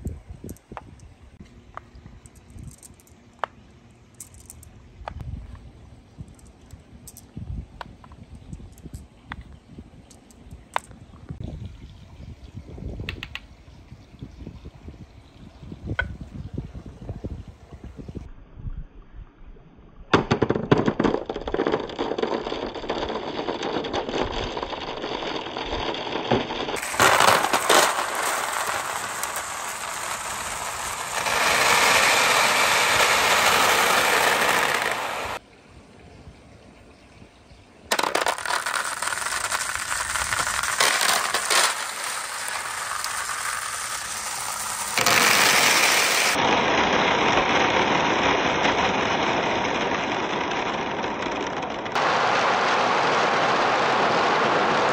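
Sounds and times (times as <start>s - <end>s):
glass marbles rolling and clattering: 2.2s - 3.2s, 4.2s - 4.7s, 6.2s - 7.4s, 8.3s - 9.1s, 20.2s - 35.4s, 37.9s - 52.0s.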